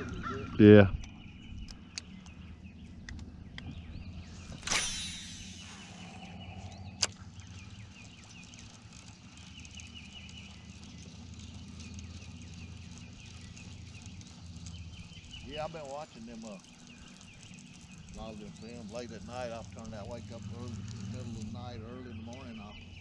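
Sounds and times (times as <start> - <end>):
birds chirping: 0.0 - 23.0
low steady hum: 0.0 - 23.0
sharp reel click: 4.6 - 7.2
reel spool whirring: 4.6 - 23.0.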